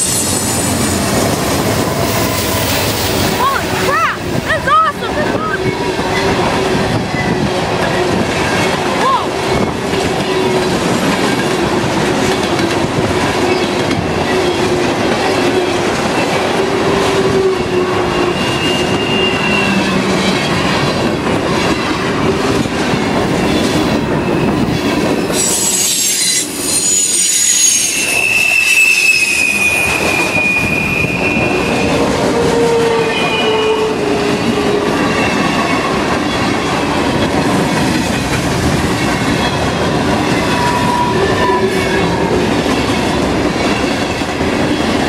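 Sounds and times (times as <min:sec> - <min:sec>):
train wheels squealing: 0:00.0 - 0:03.2, 0:17.0 - 0:21.0, 0:23.0 - 0:36.8, 0:38.9 - 0:42.2
train rumbling and clattering: 0:00.0 - 0:45.0.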